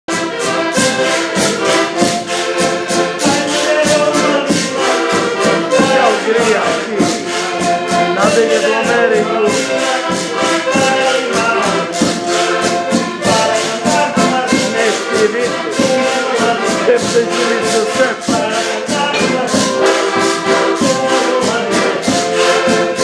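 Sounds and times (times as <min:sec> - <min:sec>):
button accordions playing: 0:00.1 - 0:23.0
man singing: 0:03.2 - 0:07.4, 0:08.1 - 0:23.0
bass drum beat: 0:03.2 - 0:22.2.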